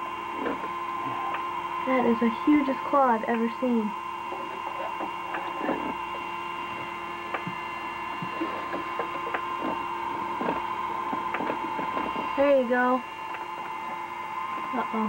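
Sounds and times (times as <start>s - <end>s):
steady hum of held tones: 0.0s - 15.0s.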